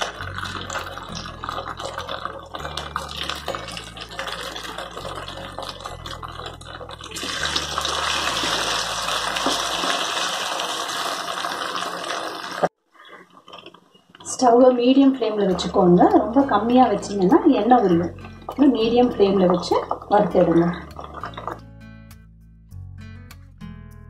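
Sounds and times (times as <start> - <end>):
fish sizzling in hot oil: 0.0 - 12.8.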